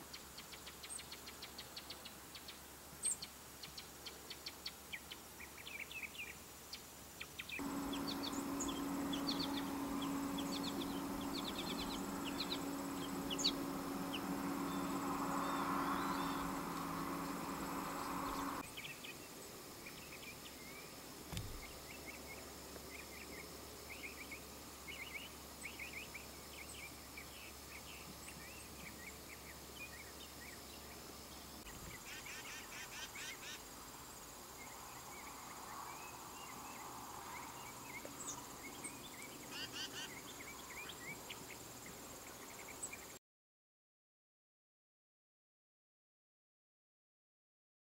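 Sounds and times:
small birds chirping: 7.5s - 18.9s
low mechanical hum: 7.6s - 18.7s, 21.3s - 22.4s.

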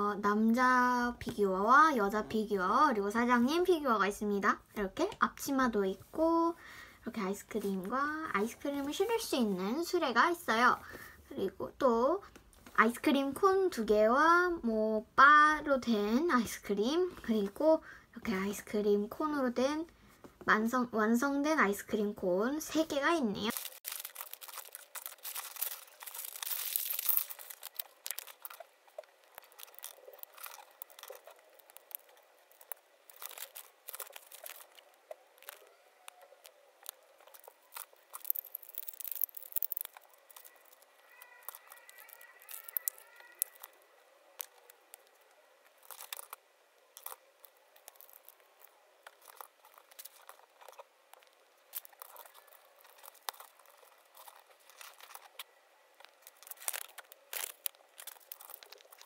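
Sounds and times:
plastic bag crinkling and tearing: 23.5s - 59.0s
plastic pieces clicking together: 36.8s - 43.7s, 44.4s - 55.4s.

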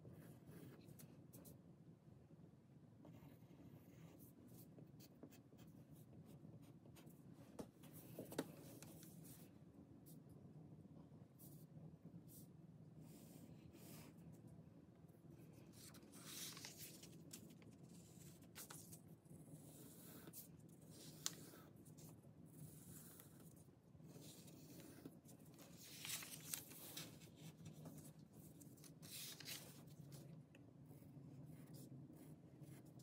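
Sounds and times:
pencil scratching on paper: 19.4s - 25.3s.

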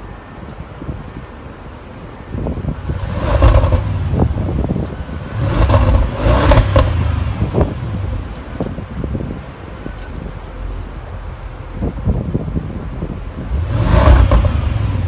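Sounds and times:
car exhaust revving: 2.4s - 9.4s, 11.7s - 15.0s
exhaust cracks: 2.7s - 8.9s, 13.3s - 15.0s.

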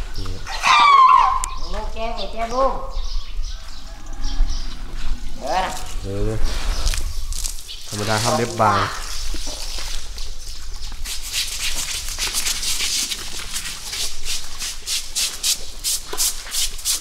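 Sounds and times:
scrubbing strokes on hide: 5.7s - 17.0s.

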